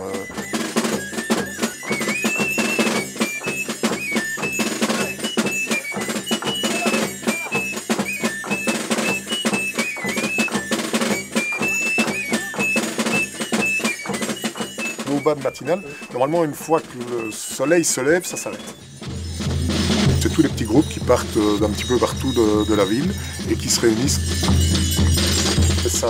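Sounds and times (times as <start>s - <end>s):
drum beating fast rhythm: 0.0s - 26.0s
high melody: 0.0s - 26.0s.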